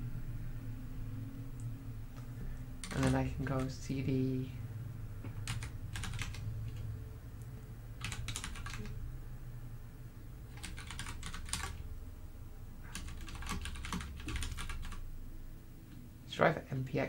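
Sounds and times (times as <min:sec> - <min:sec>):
steady low hum: 0:00.0 - 0:17.0
computer keyboard typing: 0:02.8 - 0:03.8, 0:05.4 - 0:06.9, 0:08.0 - 0:09.0, 0:10.5 - 0:11.8, 0:12.8 - 0:15.0.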